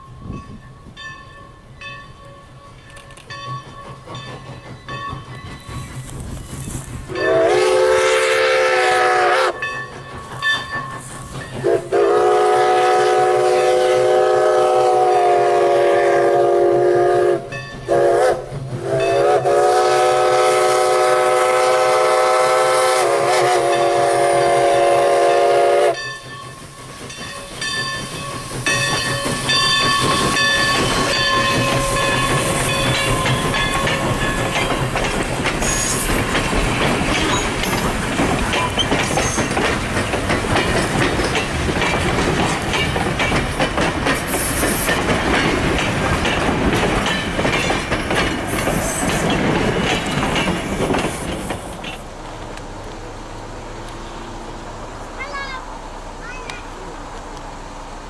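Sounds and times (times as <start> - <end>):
train passing close by: 0.0 - 58.0
steam locomotive whistle: 7.1 - 9.8, 11.6 - 26.1, 29.0 - 34.2.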